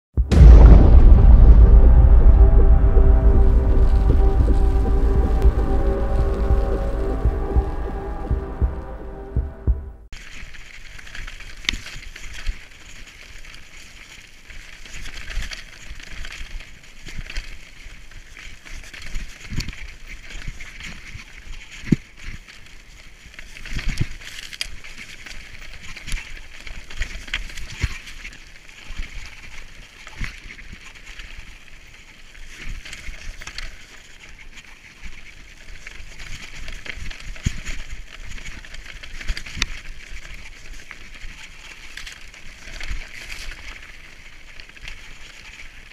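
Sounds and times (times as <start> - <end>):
wind rumbling on microphone: 0.2 - 10.1.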